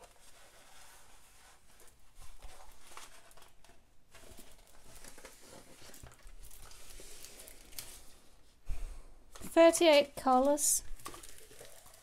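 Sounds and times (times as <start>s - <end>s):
plastic film crinkling: 1.7s - 8.2s, 9.8s - 12.0s
small crackles and taps: 9.3s - 12.0s.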